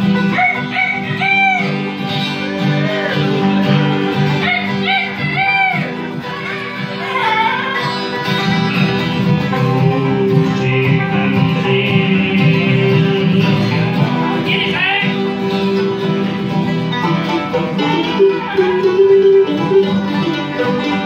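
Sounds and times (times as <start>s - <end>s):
bluegrass band playing: 0.0s - 21.0s
man singing: 9.4s - 15.3s.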